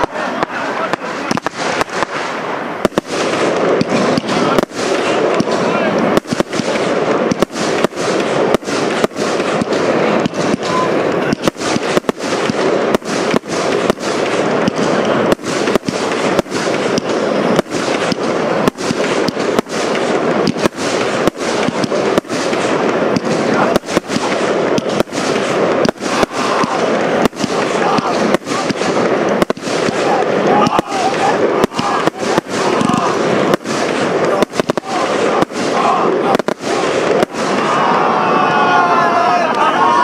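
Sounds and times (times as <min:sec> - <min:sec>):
fireworks launching and bursting: 0:00.0 - 0:40.0.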